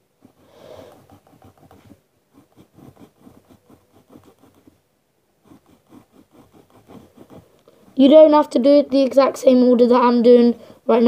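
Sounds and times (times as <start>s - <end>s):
pencil scratching on paper: 0.2s - 4.8s, 5.4s - 9.1s.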